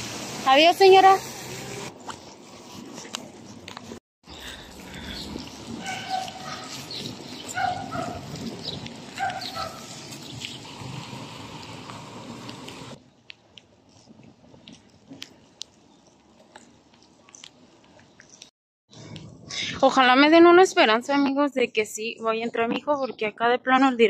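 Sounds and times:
steady outdoor hiss: 0.0 - 18.4
dog barking: 5.8 - 6.8, 7.5 - 8.3, 9.2 - 9.9.

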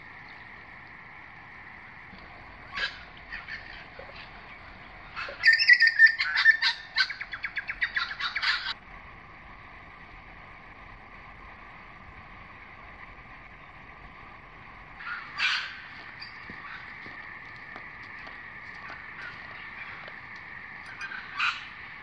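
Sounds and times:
faint bush background: 0.0 - 22.0
bird chirping loudly: 5.1 - 8.8.

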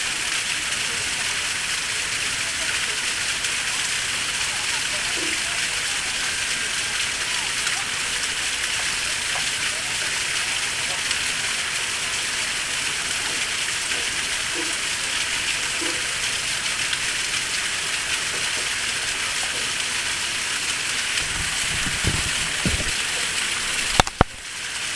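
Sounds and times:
waterfall splashing: 0.0 - 24.9
low bumps: 21.2 - 22.9.

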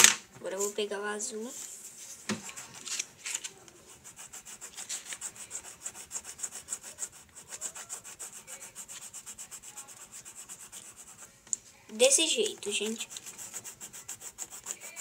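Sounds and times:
pencil scratching on paper: 2.3 - 3.0, 3.7 - 11.3, 11.9 - 15.0.

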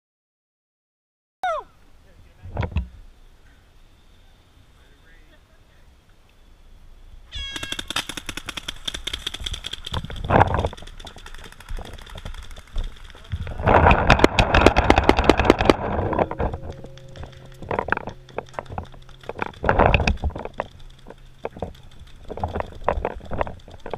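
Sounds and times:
paintball markers firing: 7.5 - 13.3.

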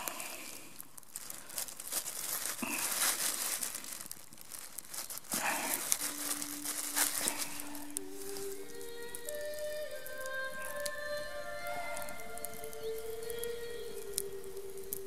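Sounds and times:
plastic bag crinkling: 0.0 - 15.0
soft music with held notes: 5.9 - 15.0.

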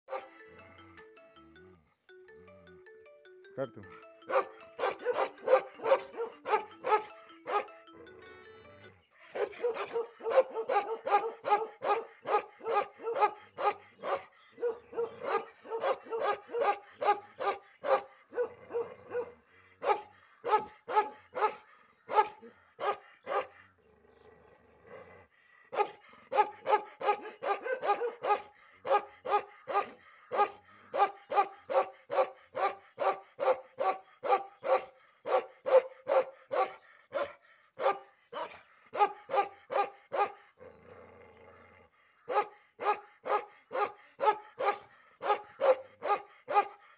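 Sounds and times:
dog barking aggressively: 4.4 - 7.7, 9.4 - 23.5, 25.8 - 40.4, 42.3 - 46.8.

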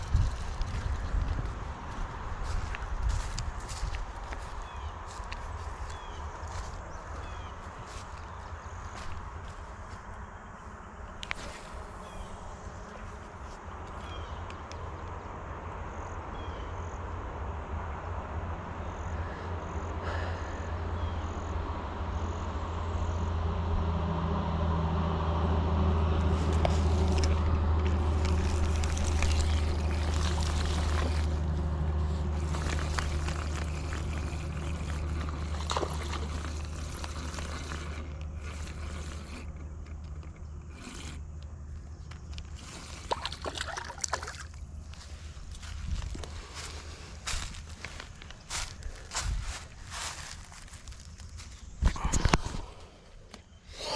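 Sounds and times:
low engine drone: 0.0 - 53.9
fishing rod and reel handled: 26.2 - 44.6
light water splashes: 32.3 - 38.8, 42.8 - 44.7.

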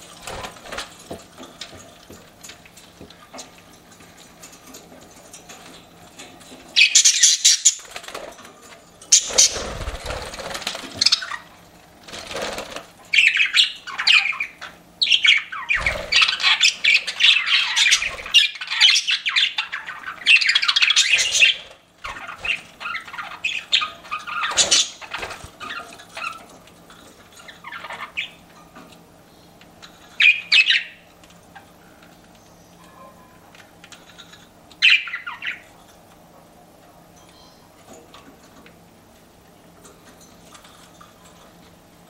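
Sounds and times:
budgerigars chirping and squawking: 6.4 - 8.0, 9.1 - 11.6, 12.2 - 28.5, 30.1 - 31.7, 34.1 - 35.8.

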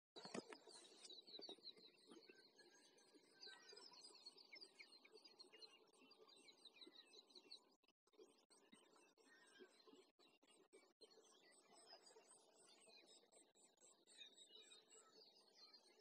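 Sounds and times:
small birds chirping: 0.2 - 7.8.

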